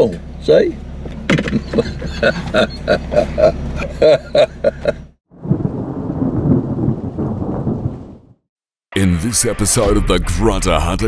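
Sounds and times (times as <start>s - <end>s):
engine humming: 0.0s - 5.2s
man laughing: 1.4s - 5.2s
rumbling glitch noise: 8.9s - 11.0s.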